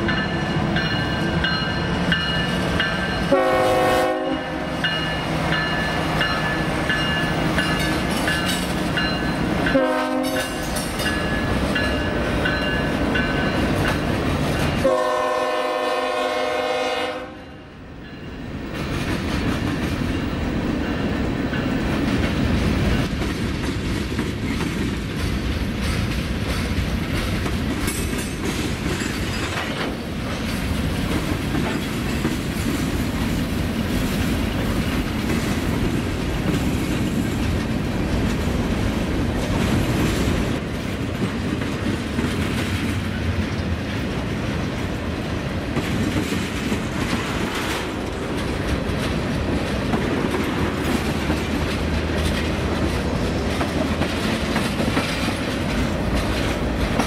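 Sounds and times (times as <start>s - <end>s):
train wheels rumbling on rails: 0.0s - 57.0s
locomotive air horn: 3.3s - 4.8s, 9.7s - 10.7s, 14.8s - 17.6s.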